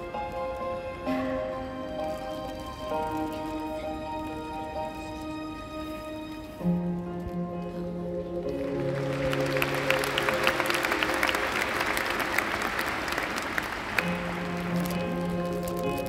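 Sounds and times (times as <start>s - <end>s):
background music with held notes: 0.0s - 16.0s
audience applauding: 8.4s - 15.9s.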